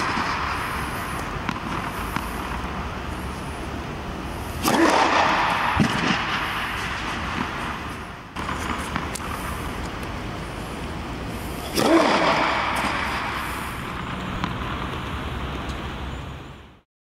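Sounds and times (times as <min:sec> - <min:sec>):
tennis racket striking ball: 0:00.0 - 0:02.8, 0:04.5 - 0:09.9, 0:11.6 - 0:15.2
steady rushing background noise: 0:00.0 - 0:16.8.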